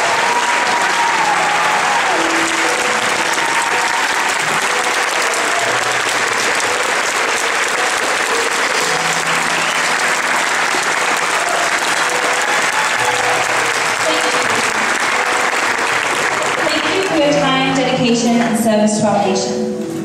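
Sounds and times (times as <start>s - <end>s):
large audience applauding: 0.0s - 17.8s
faint sustained music notes: 5.7s - 20.0s.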